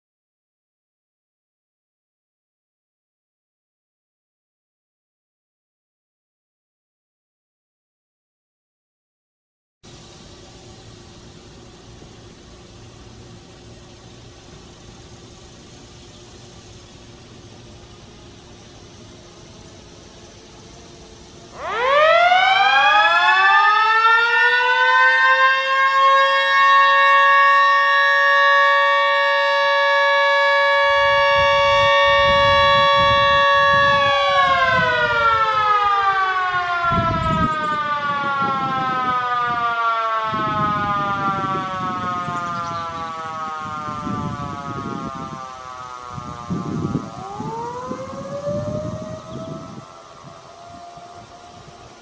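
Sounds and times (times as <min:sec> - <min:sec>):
sirens winding up and down: 0:19.1 - 0:52.0.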